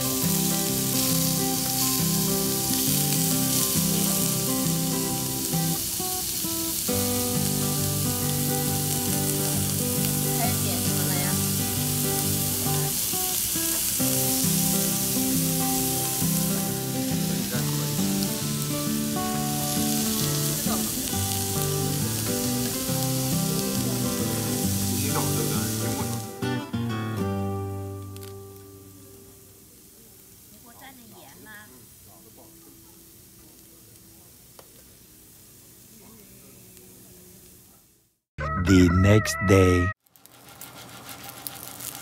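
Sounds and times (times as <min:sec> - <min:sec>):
meat sizzling on a grill: 0:00.0 - 0:38.0, 0:40.0 - 0:42.0
plucked background music: 0:14.2 - 0:28.9.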